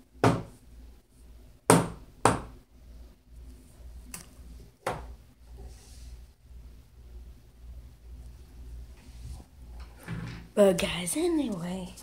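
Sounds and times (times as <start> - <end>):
sharp knocks and thumps: 0.2 - 0.5.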